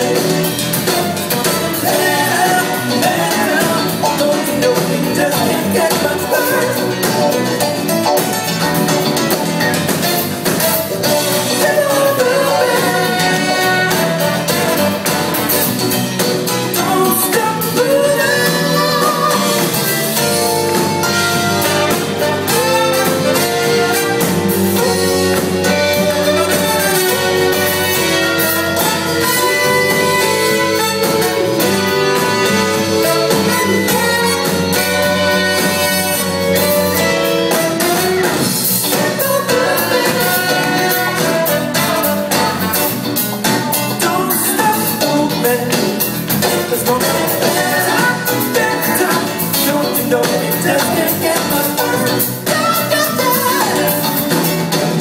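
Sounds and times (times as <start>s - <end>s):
lead singer: 0.0s - 8.3s, 10.2s - 54.8s
live band playing: 0.0s - 55.0s.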